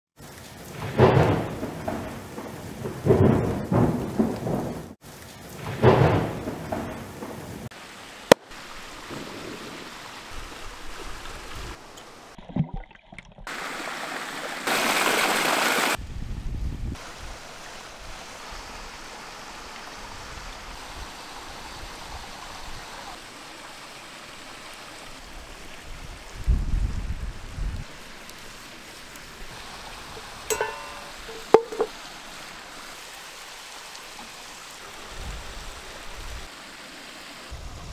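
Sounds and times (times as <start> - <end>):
stream rushing over rocks: 7.7 - 12.4, 13.5 - 16.0, 17.0 - 26.7, 27.3 - 37.9.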